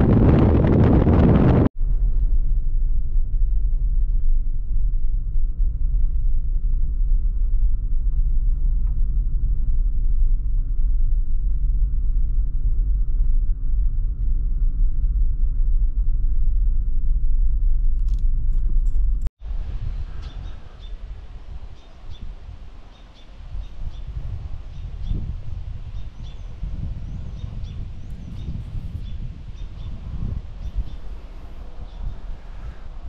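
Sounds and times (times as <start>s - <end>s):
vehicle road rumble: 0.0s - 33.0s
bird chirps: 20.2s - 21.0s, 21.7s - 24.1s.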